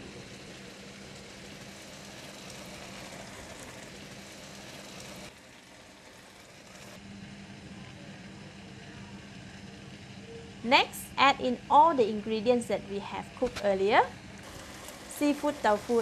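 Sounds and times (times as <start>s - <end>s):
noodles sizzling in a pan: 0.0s - 7.0s, 14.4s - 16.0s.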